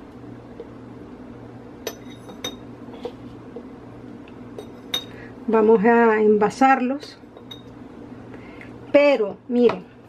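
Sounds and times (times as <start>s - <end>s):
metal spoon clinking against bowl: 1.9s - 2.7s, 7.4s - 7.7s.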